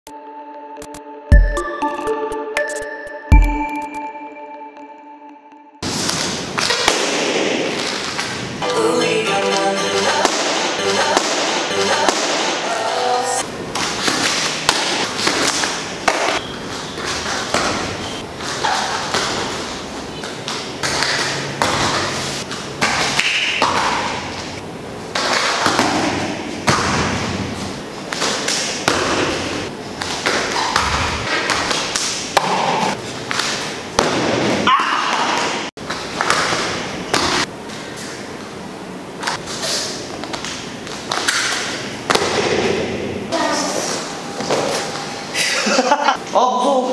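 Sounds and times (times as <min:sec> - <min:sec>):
music: 0:00.1 - 0:05.8, 0:08.6 - 0:13.4.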